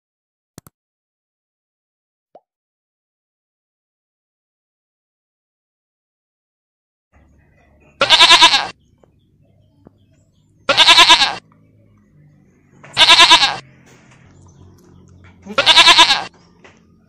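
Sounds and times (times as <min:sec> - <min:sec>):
animal calling: 0:07.9 - 0:08.8, 0:10.7 - 0:11.5, 0:12.9 - 0:13.7, 0:15.3 - 0:16.4.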